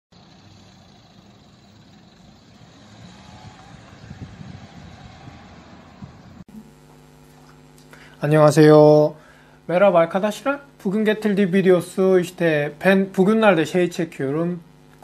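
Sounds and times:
low rumbling outdoor noise: 0.2 - 6.8
faint room hum: 6.5 - 15.0.

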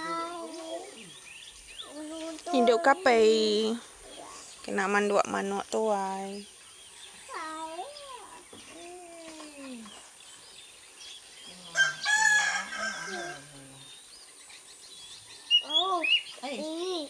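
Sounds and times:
rooster crowing: 11.6 - 13.8
softer rooster calls: 11.6 - 13.8.

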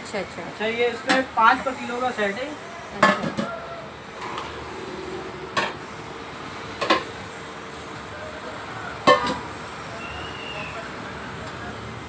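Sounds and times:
metal pots clanking on floor: 9.0 - 9.4.

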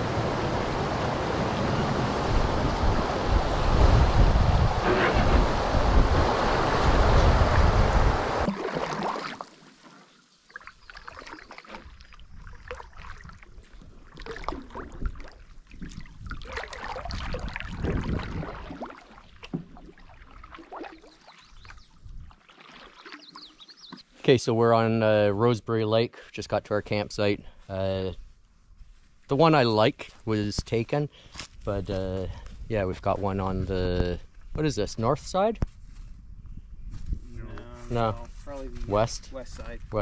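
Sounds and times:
wind buffeting microphone: 0.0 - 8.5, 15.8 - 18.7, 35.7 - 40.0
water rushing past canoe: 0.0 - 24.0
water lapping and trickling: 4.8 - 24.2.

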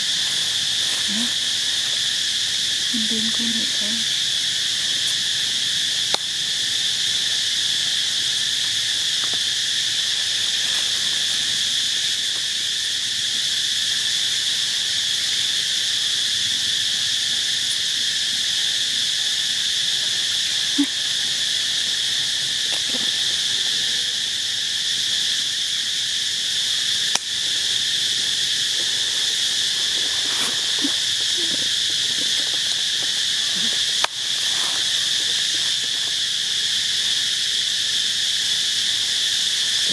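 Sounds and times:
insect chorus buzzing: 0.0 - 39.9.

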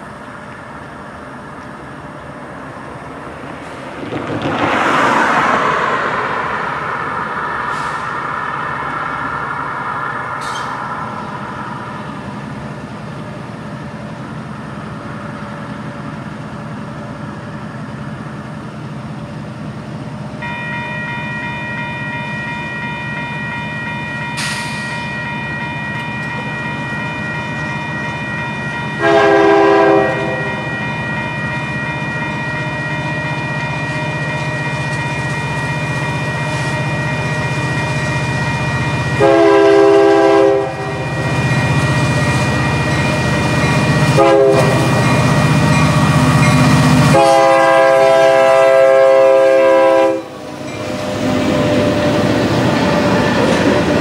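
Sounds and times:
locomotive engine rumble: 0.0 - 54.0
crossing signal bell ringing: 20.4 - 47.6, 49.0 - 52.1
locomotive horn blasts: 29.0 - 30.8, 39.1 - 41.5, 44.1 - 45.0, 47.0 - 50.4.

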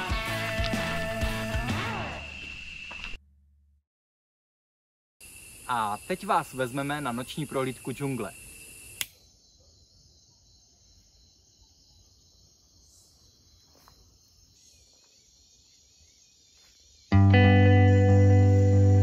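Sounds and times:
loud guitar music: 0.0 - 2.1, 17.1 - 19.0
night insects chorus: 0.0 - 3.2, 5.2 - 19.0.

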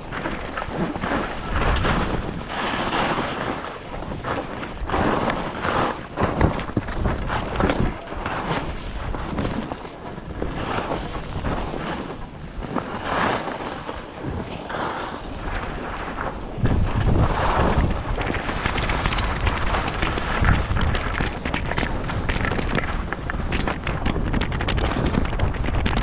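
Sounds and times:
skis scraping on snow: 0.0 - 26.0
wind rushing over microphone: 0.0 - 26.0.

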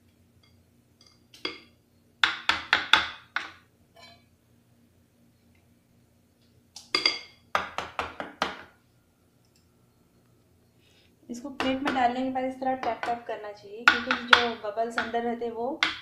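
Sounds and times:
metal plates knocking on counter: 13.9 - 15.2.

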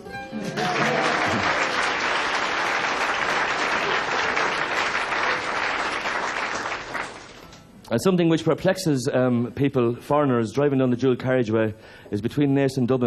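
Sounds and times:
audience applauding: 0.3 - 7.6.

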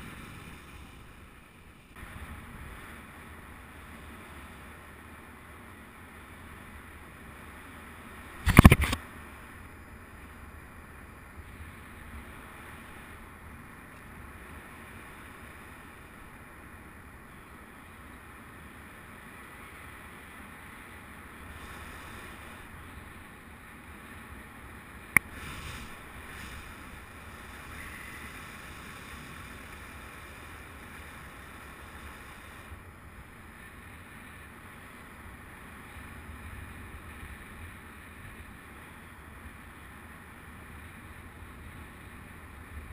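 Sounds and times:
sharp click: 8.4 - 9.0.

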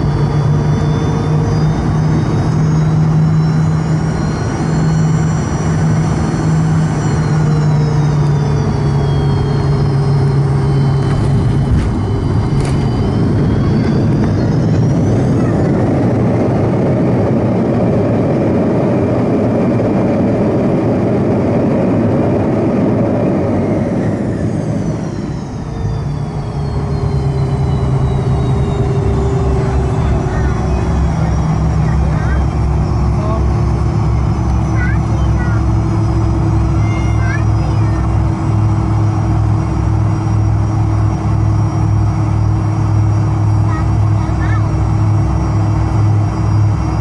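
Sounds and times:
jet engines roaring: 0.0 - 47.0.

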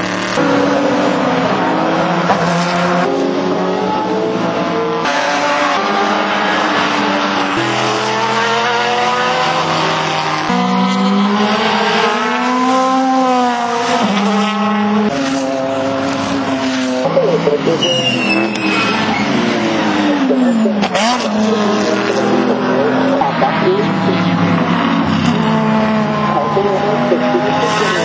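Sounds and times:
racing car engines: 0.0 - 28.0.

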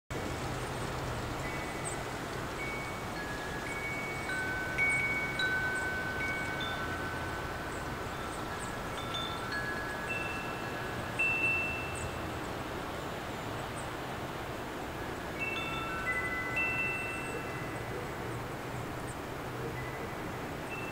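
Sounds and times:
wind chimes ringing: 1.4 - 13.2, 15.1 - 18.4, 19.7 - 20.9.

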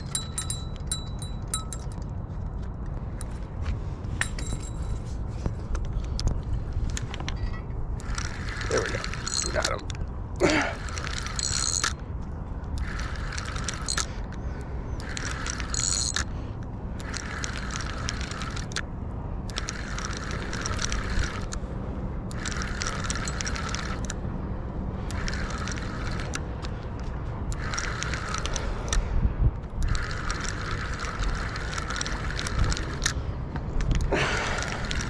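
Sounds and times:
spinning reel gears whirring and clicking: 8.0 - 10.0, 10.7 - 12.0, 12.7 - 14.2, 15.0 - 16.3, 17.0 - 18.8, 19.5 - 21.6, 22.3 - 24.2, 25.0 - 26.7, 27.5 - 29.0, 29.7 - 33.2, 34.6 - 35.0.

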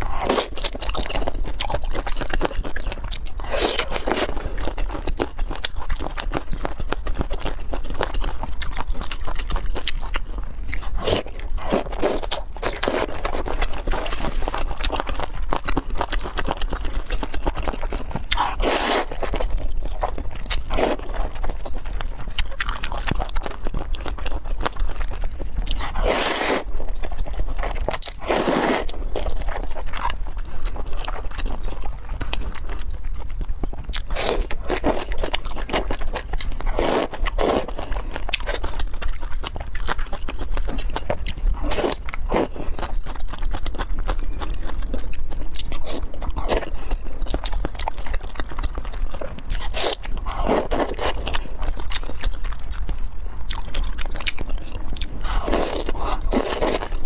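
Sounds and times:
mouth biting and chewing: 0.0 - 57.0
slurping noodles: 18.3 - 19.4, 25.8 - 26.7, 28.2 - 29.0, 36.7 - 37.8, 49.6 - 51.3.

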